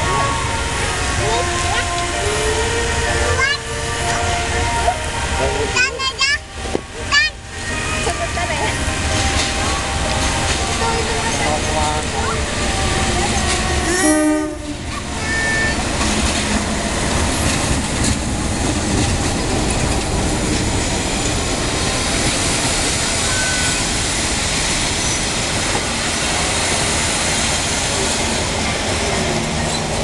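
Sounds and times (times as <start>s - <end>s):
train horn blast: 0.0s - 15.8s
train wheels on rails: 0.0s - 30.0s.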